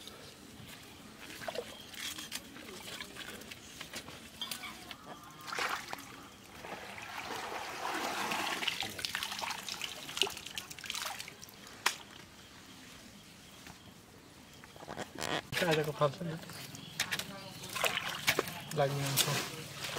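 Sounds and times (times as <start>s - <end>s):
muddy water splashing: 5.3s - 12.0s, 16.9s - 19.9s.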